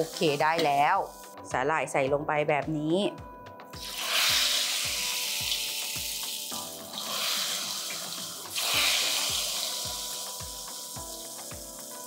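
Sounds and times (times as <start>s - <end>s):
deep-frying sizzle: 0.0s - 1.4s, 3.8s - 12.0s.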